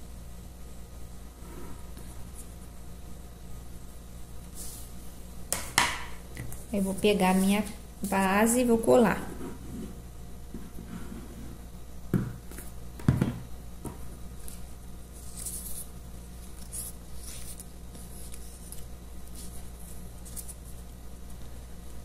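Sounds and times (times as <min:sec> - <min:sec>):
knocks on table: 0:12.1 - 0:12.4.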